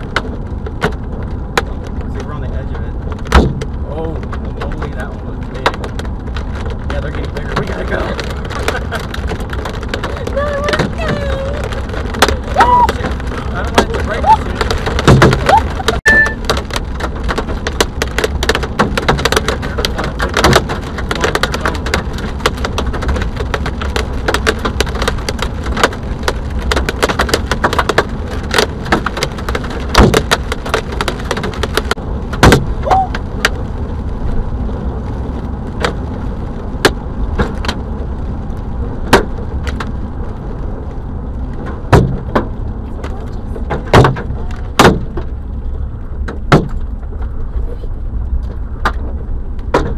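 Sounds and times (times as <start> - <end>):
hailstones striking car roof: 0.0 - 47.4, 48.4 - 49.9
car road rumble: 0.0 - 49.9.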